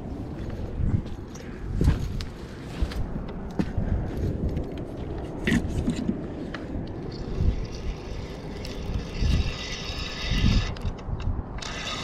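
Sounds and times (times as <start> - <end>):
spinning reel being wound: 7.1 - 11.0, 11.6 - 12.0.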